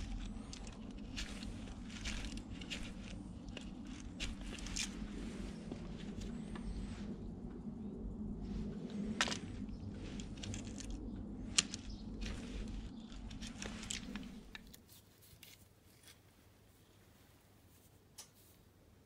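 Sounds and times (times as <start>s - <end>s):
rustling: 0.0s - 7.5s, 8.4s - 19.0s
low steady rumble: 0.0s - 14.8s.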